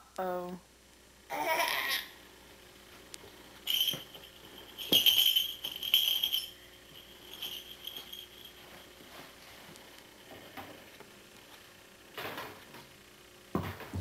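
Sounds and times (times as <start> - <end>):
small bells jingling: 3.6 - 9.3.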